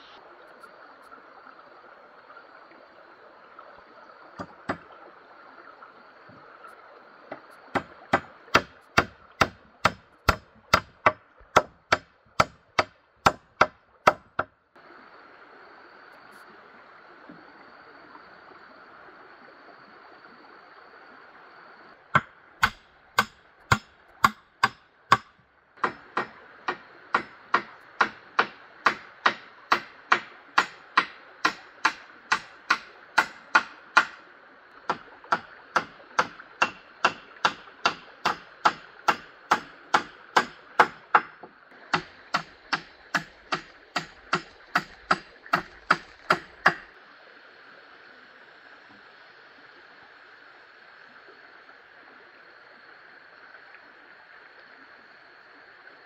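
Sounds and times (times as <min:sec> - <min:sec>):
running water: 0:00.0 - 0:56.0
knife chopping: 0:07.8 - 0:14.5.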